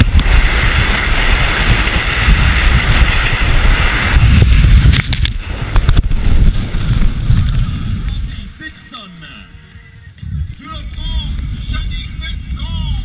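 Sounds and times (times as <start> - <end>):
wind buffeting camera: 0.0 - 8.8, 9.4 - 13.0
ski edges hissing on snow: 0.0 - 9.1.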